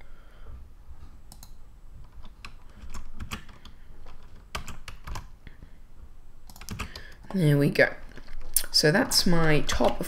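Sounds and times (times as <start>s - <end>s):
keyboard keys clicking: 1.3s - 5.3s, 6.4s - 7.4s.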